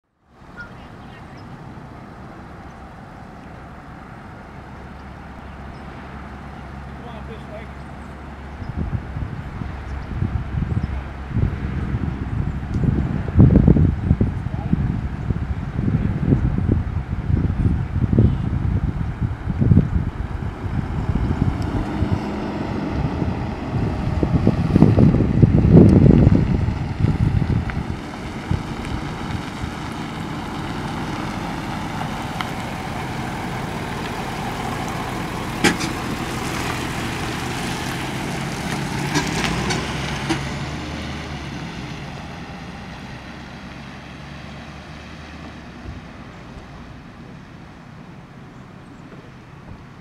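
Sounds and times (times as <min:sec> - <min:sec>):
ambulance engine passing: 0:00.3 - 0:50.0
wind buffeting microphone: 0:08.1 - 0:44.6.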